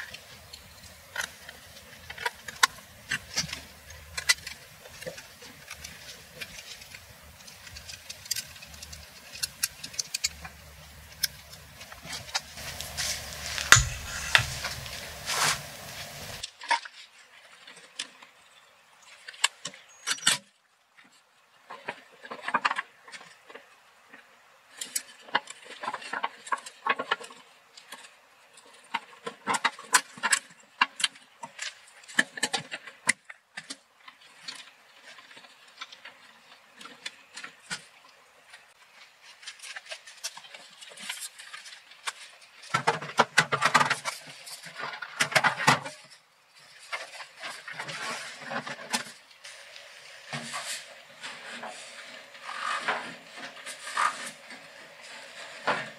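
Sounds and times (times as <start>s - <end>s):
hands handling wires and parts: 0.0s - 16.9s.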